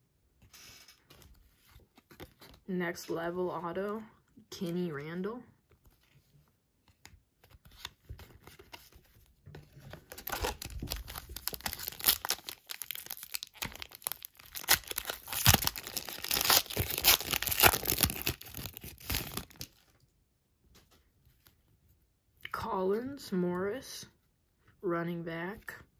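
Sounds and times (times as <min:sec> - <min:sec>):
wrapper crinkling and tearing: 0:10.0 - 0:19.9.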